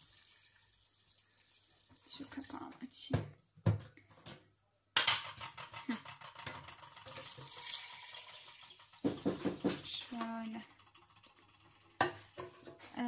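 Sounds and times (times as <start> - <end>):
water pouring into metal pot: 0.0 - 2.6, 6.4 - 12.4
plastic jug lid knocks: 9.0 - 9.8.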